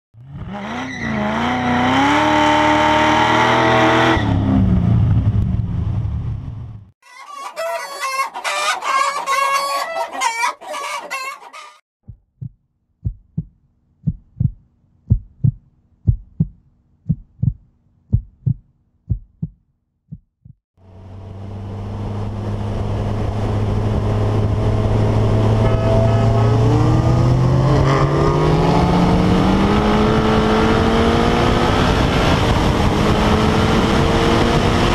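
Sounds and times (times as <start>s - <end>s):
car engine running and revving: 0.2s - 6.9s, 20.8s - 34.9s
hens clucking: 7.0s - 11.8s
rooster crowing: 7.0s - 11.8s
low thumps: 12.0s - 20.6s.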